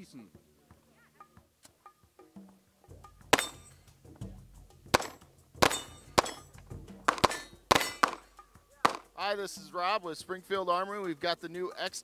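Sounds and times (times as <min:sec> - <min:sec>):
pistol shots: 0:03.4 - 0:03.8, 0:04.9 - 0:06.5, 0:07.1 - 0:08.3, 0:08.9 - 0:09.2.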